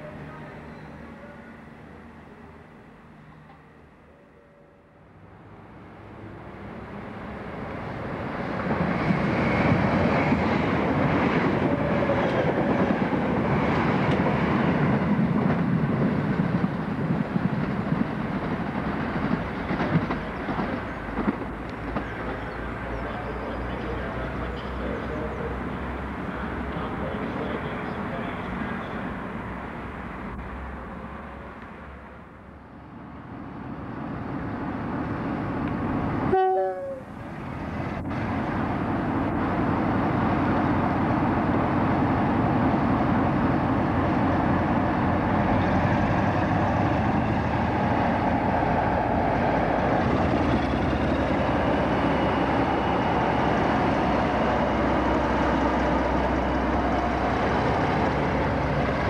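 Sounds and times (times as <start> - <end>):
rumble of approaching train: 0.0 - 59.0
diesel locomotive engine running: 33.6 - 59.0
two-note train horn: 36.3 - 37.1.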